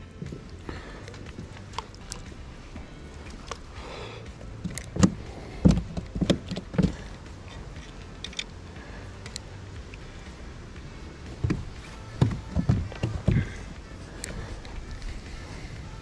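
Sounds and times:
fishing reel clicks: 0:07.4 - 0:08.6, 0:09.2 - 0:09.5.

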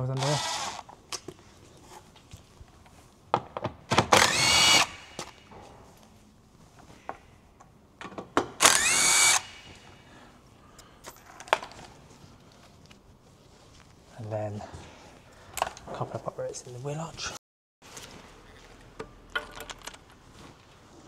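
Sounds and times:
power tool motor whine: 0:04.2 - 0:05.2, 0:08.6 - 0:09.7
small clicks and knocks: 0:19.0 - 0:20.2.

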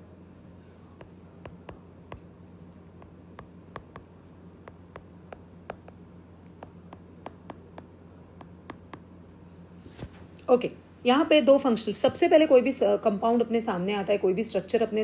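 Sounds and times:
faint steady hum: 0:00.0 - 0:15.0
stylus tapping on glass screen: 0:01.0 - 0:02.3, 0:03.0 - 0:09.1.

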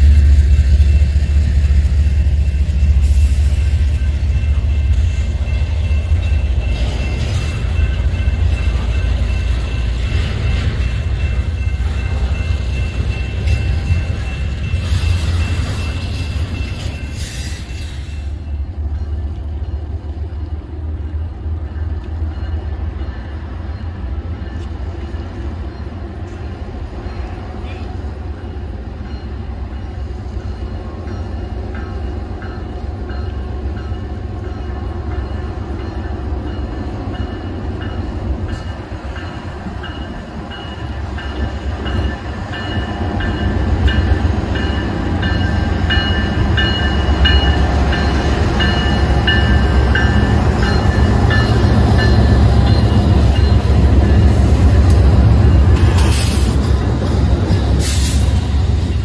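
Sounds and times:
diesel train engine rumble: 0:00.0 - 0:59.0.

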